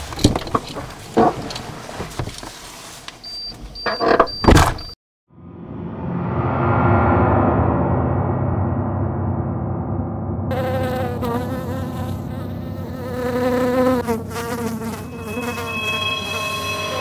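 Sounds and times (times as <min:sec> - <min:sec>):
wasp buzzing in flight: 0:10.5 - 0:17.0.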